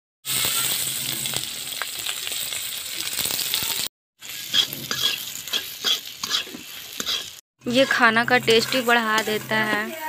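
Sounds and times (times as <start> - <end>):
chillies sizzling in hot oil: 0.2 - 10.0
spatula stirring: 4.3 - 10.0.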